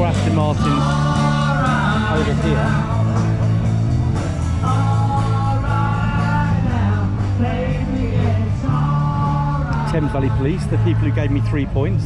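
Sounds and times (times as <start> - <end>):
low bass line: 0.0 - 12.0.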